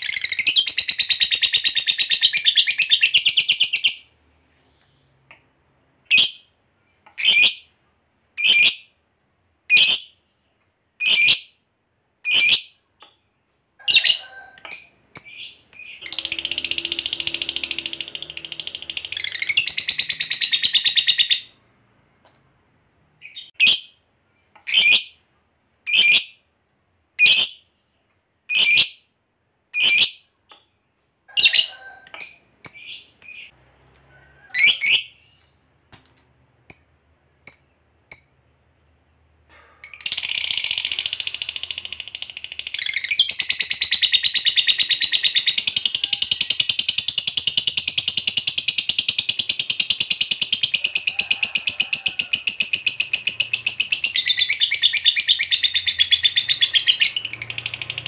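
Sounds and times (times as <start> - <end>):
lovebird chirping and trilling: 0.0 - 4.1, 7.2 - 7.7, 8.4 - 8.9, 9.7 - 10.2, 11.0 - 11.6, 12.2 - 12.8, 13.8 - 21.6, 24.7 - 25.2, 25.9 - 26.4, 27.2 - 27.6, 28.5 - 29.1, 29.8 - 30.2, 31.3 - 38.6, 39.9 - 58.0.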